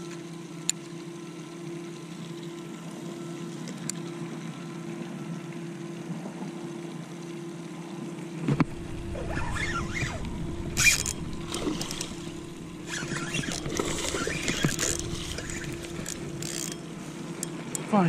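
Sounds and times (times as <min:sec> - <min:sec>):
spinning reel being wound: 0:09.2 - 0:17.5.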